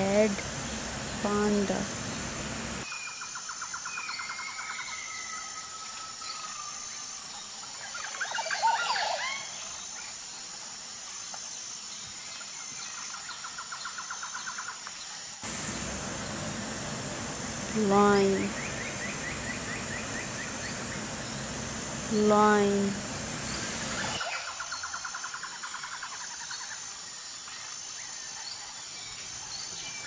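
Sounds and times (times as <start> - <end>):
birds chirping: 0.0 - 2.8, 15.4 - 24.2.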